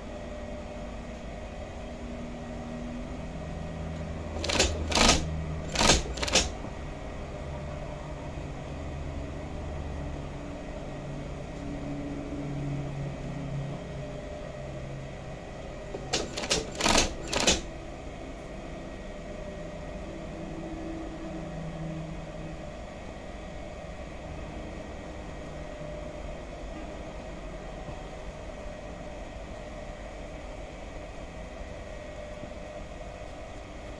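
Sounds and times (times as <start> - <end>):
sewing machine motor hum: 4.2 - 6.7, 15.9 - 17.7
sewing machine stitching bursts: 4.3 - 6.6, 16.0 - 17.7.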